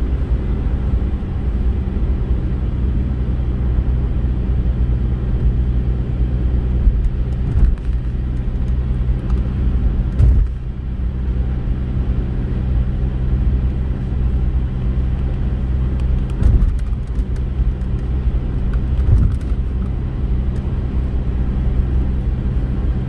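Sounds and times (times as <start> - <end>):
car engine and tyre hum: 0.0 - 23.0
car bumps: 7.4 - 8.1, 10.1 - 10.7, 16.4 - 17.1, 19.0 - 19.6.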